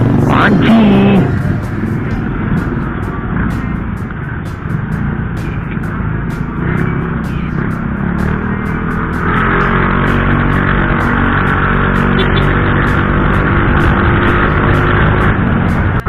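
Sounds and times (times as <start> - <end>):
scooter engine accelerating: 0.0 - 16.0
wind rushing over microphone: 12.9 - 16.0.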